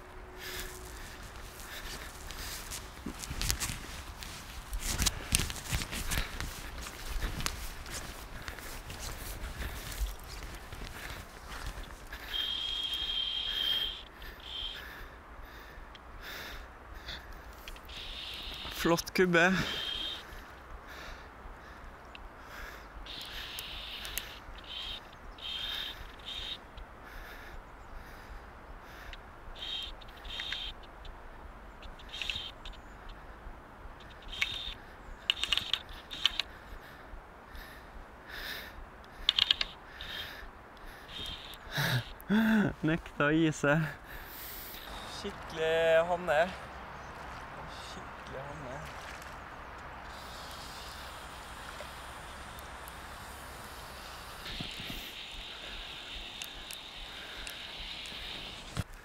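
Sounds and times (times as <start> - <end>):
fishing reel drag whining: 23.1 - 26.6, 50.0 - 58.8.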